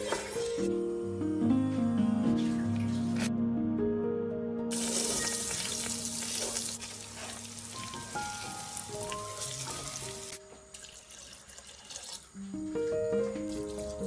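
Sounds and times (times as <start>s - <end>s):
soft background music: 0.0s - 14.0s
rice sizzling in hot oil: 4.7s - 10.4s.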